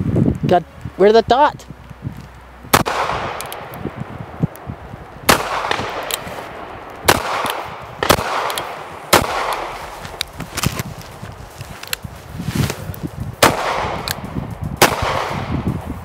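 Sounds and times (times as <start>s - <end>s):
revolver shots with ringing echo: 2.7s - 4.0s, 5.3s - 9.9s, 13.4s - 15.6s.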